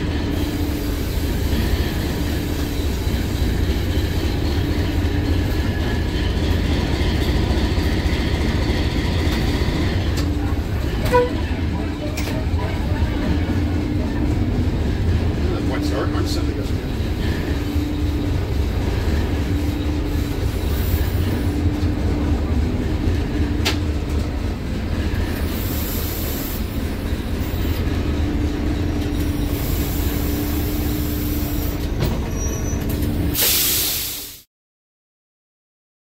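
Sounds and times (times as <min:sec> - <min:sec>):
diesel train engine rumble: 0:00.0 - 0:34.4
air hissing: 0:00.3 - 0:04.4, 0:25.4 - 0:26.8, 0:29.4 - 0:31.9, 0:33.3 - 0:34.5.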